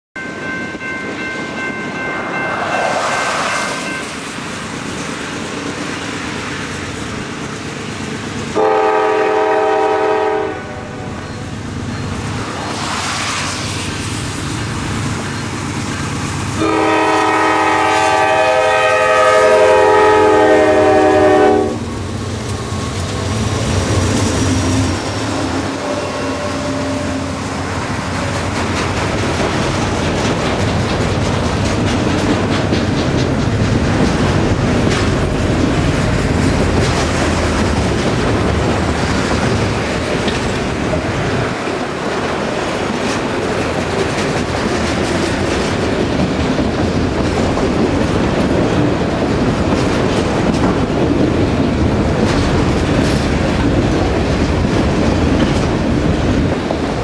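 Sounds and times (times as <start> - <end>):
locomotive horn blasts: 8.6 - 11.2, 16.6 - 21.8
train wheels clattering on rails: 11.2 - 57.0.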